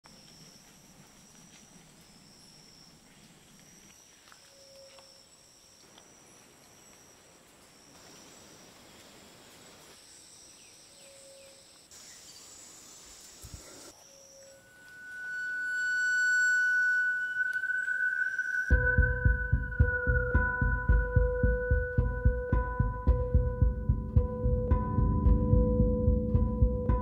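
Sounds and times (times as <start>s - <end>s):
insects calling: 0.1s - 21.7s
high-pitched insect whine: 0.1s - 22.3s
short low whistles: 14.0s - 21.2s.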